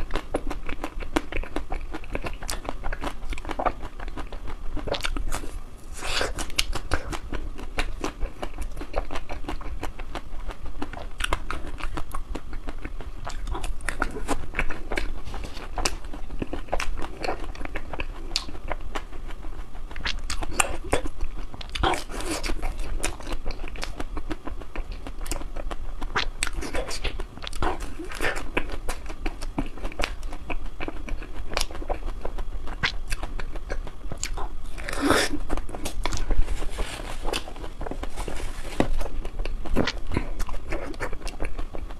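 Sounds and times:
person chewing: 0:00.0 - 0:41.9.

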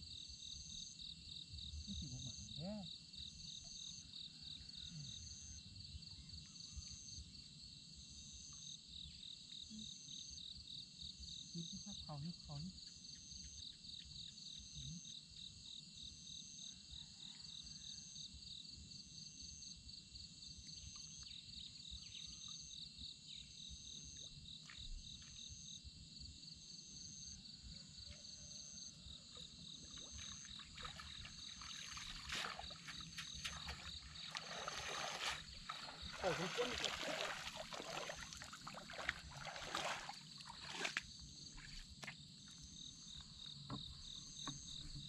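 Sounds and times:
insects chirping: 0:00.0 - 0:45.0
water splashing and sloshing: 0:29.3 - 0:42.6.

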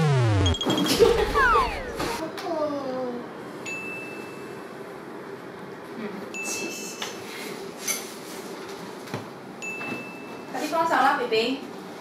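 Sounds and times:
faint steady hum: 0:00.0 - 0:03.8
high clear chime tones: 0:00.4 - 0:02.1.

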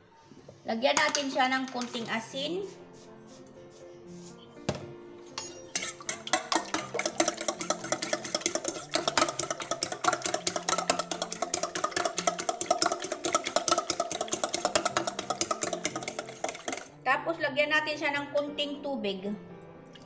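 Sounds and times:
fork clinking against metal bowl: 0:05.4 - 0:16.9.

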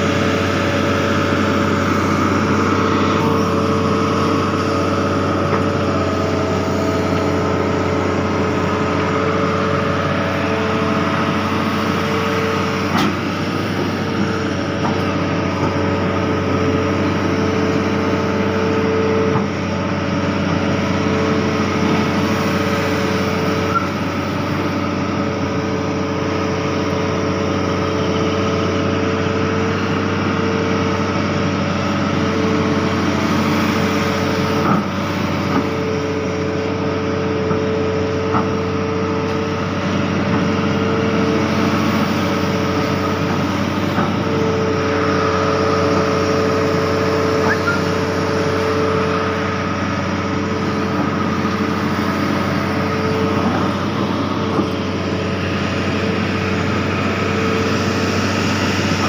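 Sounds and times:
diesel engine running under load: 0:00.0 - 0:59.0
whine over engine: 0:00.0 - 0:59.0.

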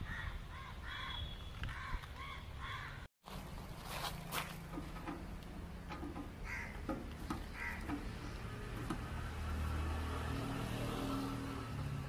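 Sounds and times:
vehicle engine humming: 0:03.3 - 0:12.0.

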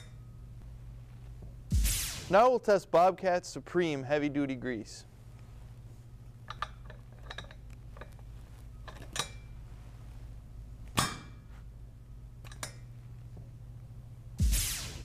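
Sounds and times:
steady low hum: 0:00.0 - 0:15.0
light metal clicks and knocks: 0:06.4 - 0:08.2.

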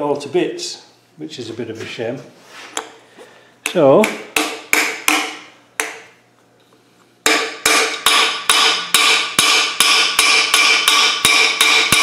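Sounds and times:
hammer striking steel: 0:04.0 - 0:06.0, 0:07.2 - 0:12.0.

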